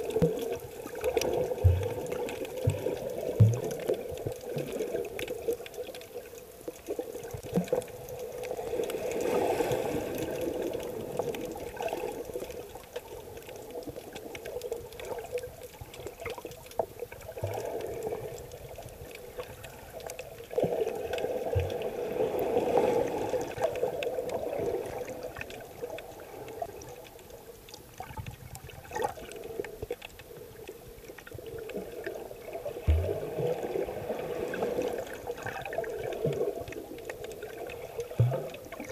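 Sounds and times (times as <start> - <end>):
underwater rushing seawater: 0.0 - 38.9.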